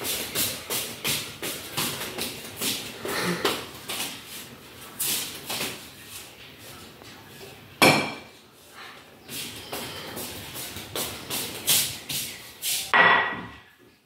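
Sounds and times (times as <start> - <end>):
tableware knocking and clattering: 7.8 - 8.3, 12.9 - 13.6.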